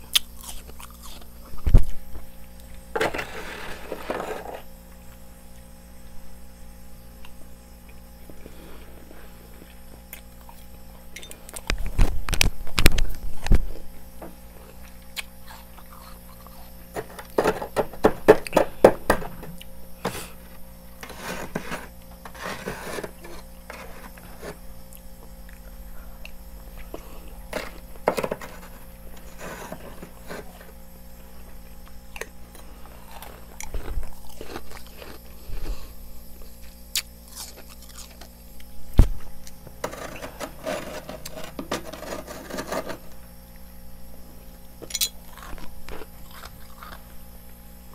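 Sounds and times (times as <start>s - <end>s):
frost crunching in mouth: 0.0s - 2.8s, 31.9s - 38.7s, 44.8s - 47.2s
metal spoon scraping frost: 3.0s - 4.7s, 21.0s - 24.6s, 27.0s - 30.8s, 39.8s - 43.2s.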